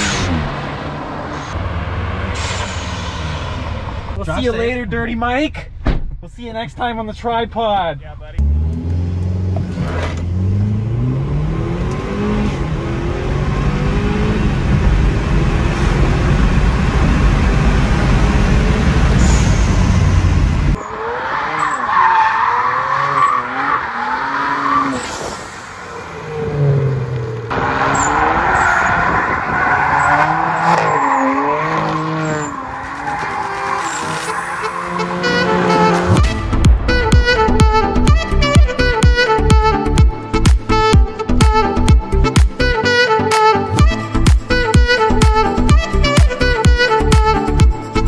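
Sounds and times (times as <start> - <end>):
car engine revving: 0.0 - 4.3, 8.3 - 42.0
tyres squealing and skidding: 19.2 - 39.0.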